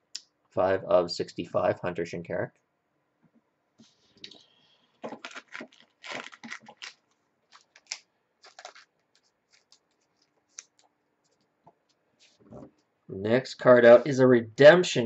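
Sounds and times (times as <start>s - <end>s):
cards scraping and rustling: 5.0s - 11.5s.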